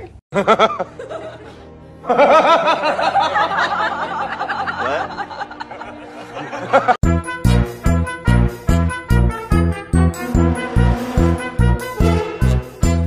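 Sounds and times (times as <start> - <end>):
person laughing: 0.0 - 7.0
music: 0.4 - 13.0.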